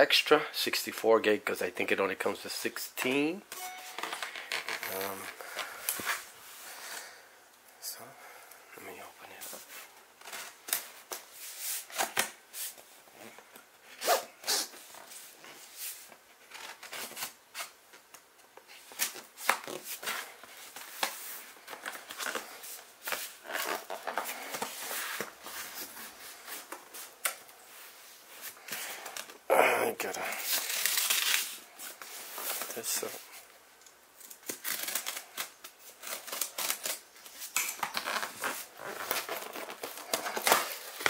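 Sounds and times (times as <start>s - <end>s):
tape peeled from cardboard: 30.4s - 32.7s, 34.2s - 41.0s
scissors scraping packing tape: 34.2s - 41.0s.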